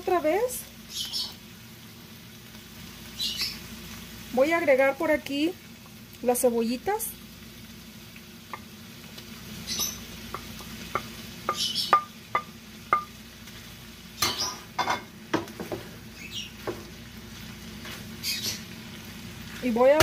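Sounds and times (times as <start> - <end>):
food sizzling: 0.0 - 20.0
spoon knocking in a pan: 9.7 - 13.2
wooden spoon tapping: 9.8 - 13.1.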